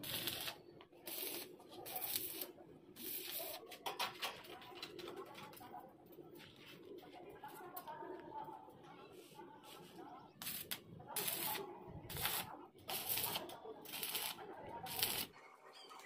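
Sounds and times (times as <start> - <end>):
welding torch hissing bursts: 0.0 - 3.4, 10.4 - 15.3.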